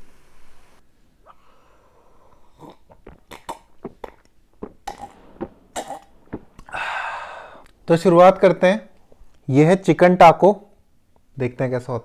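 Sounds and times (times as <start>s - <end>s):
wet mouth clicks: 2.3s - 6.7s
man gulping fizzy drink: 2.3s - 7.8s.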